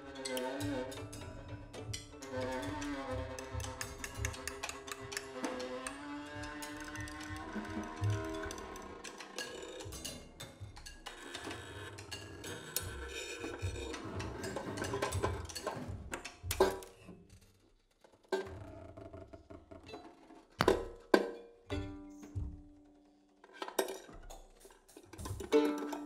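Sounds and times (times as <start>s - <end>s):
banjo struck with a stick: 0.0s - 11.1s, 20.6s - 22.9s, 24.1s - 26.0s
drums: 0.0s - 18.3s, 21.7s - 23.2s, 24.0s - 26.0s.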